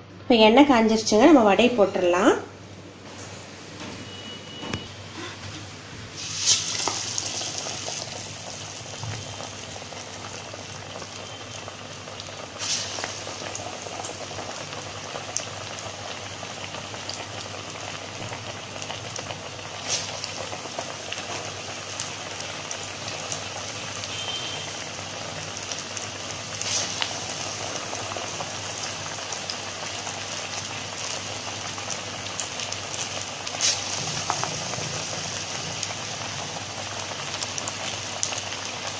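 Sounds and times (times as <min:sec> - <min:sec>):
fritters sizzling in hot oil: 0:04.4 - 0:38.9
sharp hiss of patty dropped in oil: 0:06.2 - 0:07.2, 0:12.6 - 0:13.0, 0:33.6 - 0:34.0.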